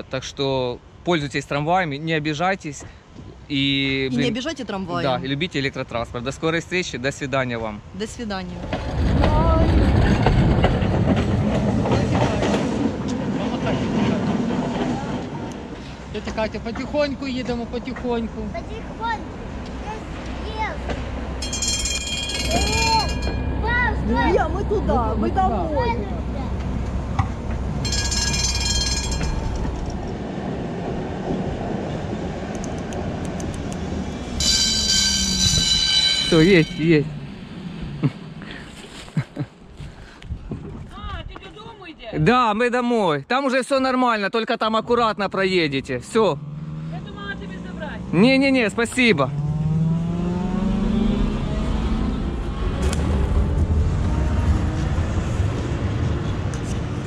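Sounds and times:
tram rumbling on rails: 7.8 - 39.7, 48.0 - 57.0
high-pitched wheel squeal: 21.4 - 24.0, 34.4 - 37.1
rising whine: 31.9 - 38.0.

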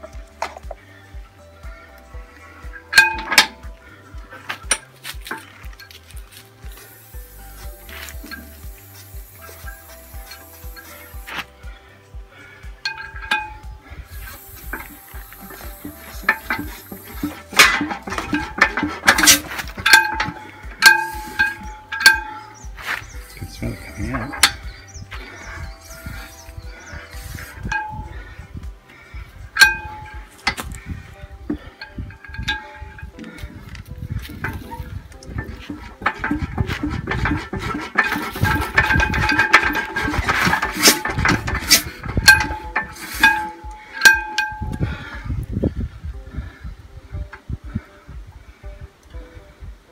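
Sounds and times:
steady low beat: 0.0 - 49.9
aerosol spray hissing: 6.6 - 11.5, 14.1 - 17.5, 26.0 - 27.7
ringing metallic clinks: 12.8 - 24.8, 25.6 - 28.2, 34.4 - 44.8
engine mechanism clicking and knocking: 14.7 - 22.8, 31.5 - 44.8.

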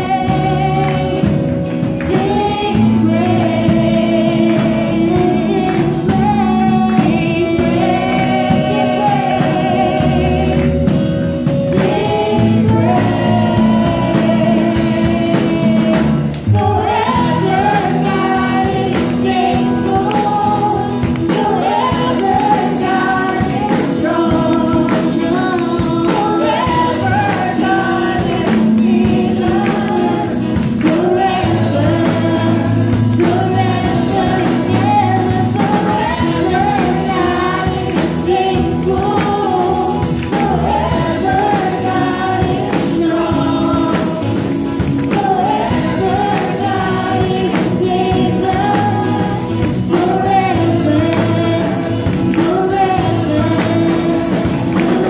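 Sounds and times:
acoustic guitar: 0.0 - 55.0
drum kit beat: 0.0 - 55.0
electric guitar: 0.0 - 55.0
person singing: 0.0 - 55.0.

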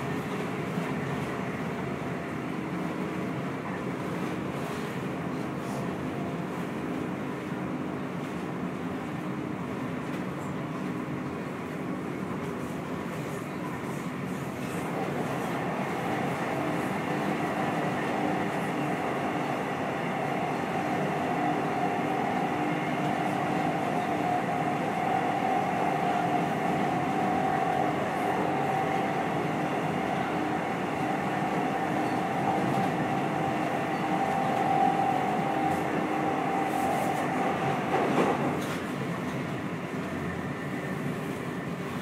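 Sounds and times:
train wheels rolling on track: 12.4 - 42.0.

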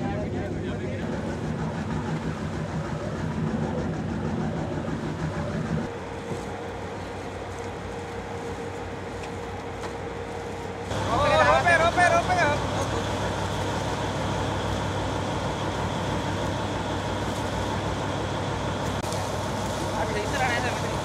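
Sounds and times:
boat engine running: 0.0 - 21.0
wind: 0.0 - 21.0
sea noise: 10.1 - 21.0.

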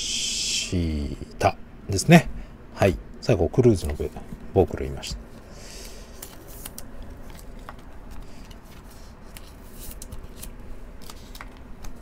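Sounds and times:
trading cards clicking and rustling: 5.7 - 12.0.

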